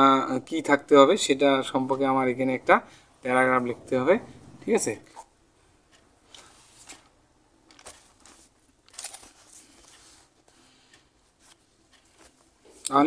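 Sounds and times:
paper pages rustling: 7.7 - 10.3.

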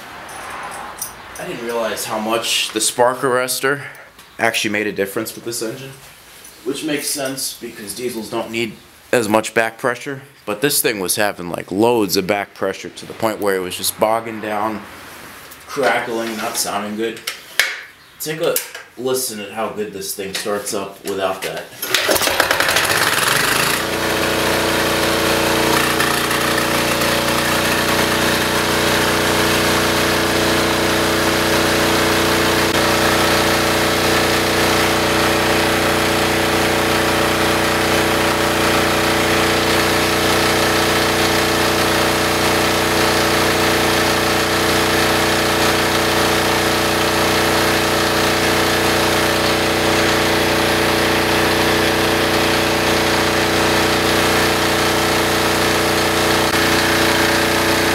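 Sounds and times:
diesel generator engine running: 22.0 - 57.9.

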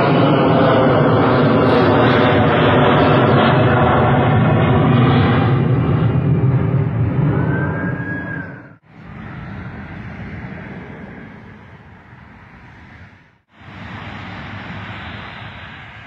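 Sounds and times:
highway traffic: 8.8 - 16.0.

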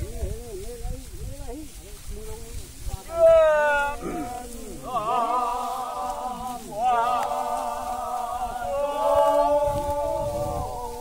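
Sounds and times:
voices chanting long held notes: 3.0 - 11.0.

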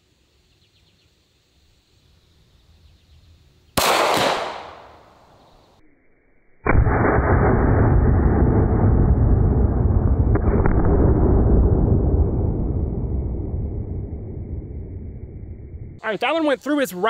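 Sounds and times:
pistol shot: 3.8 - 5.2.

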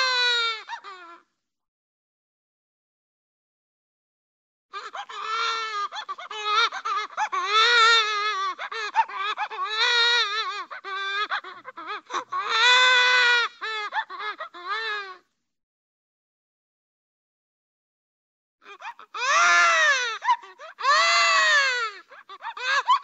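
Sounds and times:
cartoon baby crying: 0.0 - 1.2, 4.8 - 15.2, 18.7 - 23.0.

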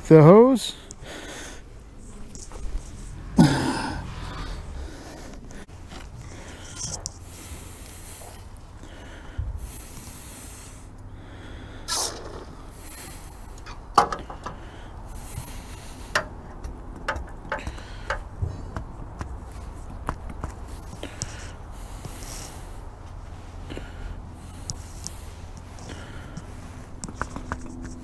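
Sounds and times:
low wind rumble: 0.9 - 27.0
handling clicks and knocks: 13.9 - 14.6, 16.1 - 21.3.

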